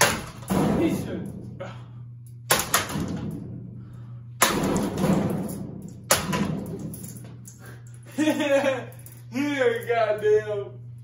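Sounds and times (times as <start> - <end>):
ceiling fan rattling: 2.4 - 11.0.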